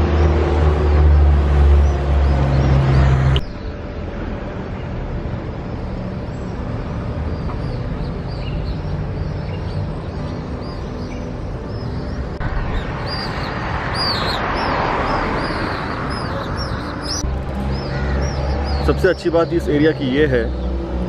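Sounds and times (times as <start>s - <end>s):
engine hum: 0.0s - 21.0s
small birds chirping: 6.2s - 20.8s.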